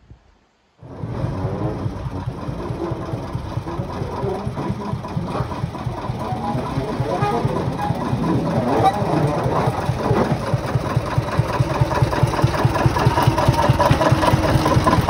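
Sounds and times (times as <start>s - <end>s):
diesel locomotive engine chugging: 0.8s - 15.0s.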